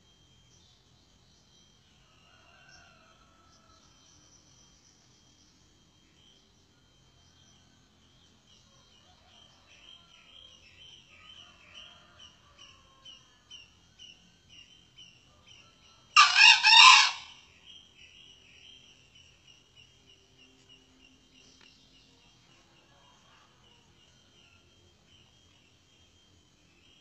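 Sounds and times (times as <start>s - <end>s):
rooster crowing: 15.7s - 17.4s.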